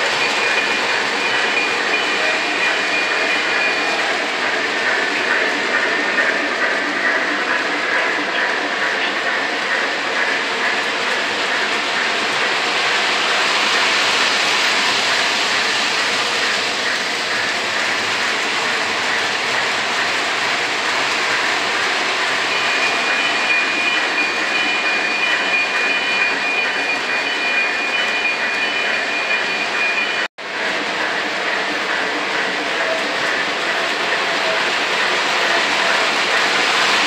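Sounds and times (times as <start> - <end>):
steady high tone: 0.0 - 10.4
model train wheels rumbling: 0.0 - 37.0.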